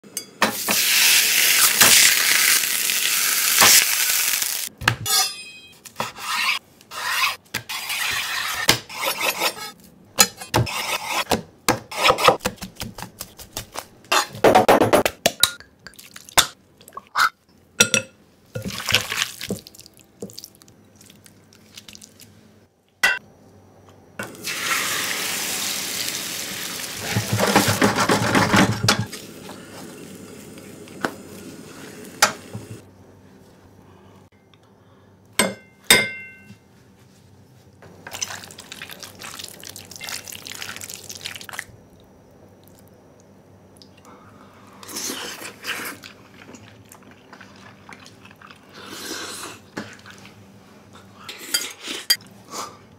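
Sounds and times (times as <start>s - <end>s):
egg sizzling in a frying pan: 0.5s - 4.7s, 24.3s - 27.4s
chewing and eating: 44.8s - 50.4s.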